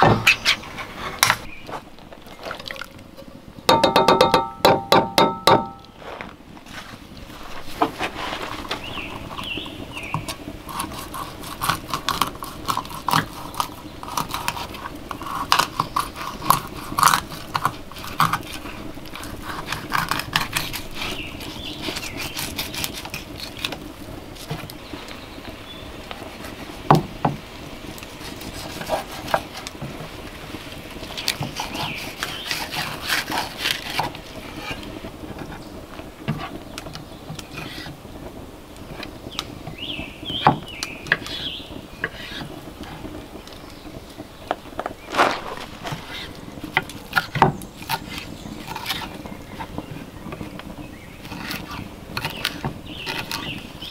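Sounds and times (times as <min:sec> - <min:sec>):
sharp knock: 0:03.7 - 0:05.8.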